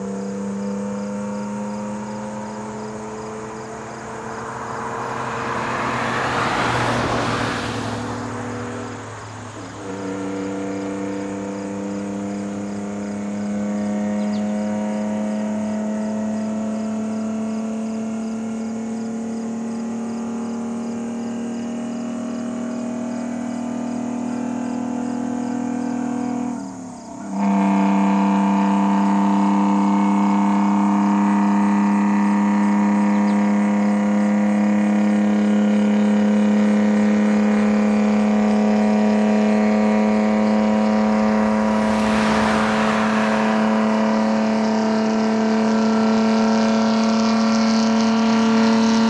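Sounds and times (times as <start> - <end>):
rushing noise: 4.2 - 9.8, 40.0 - 46.2.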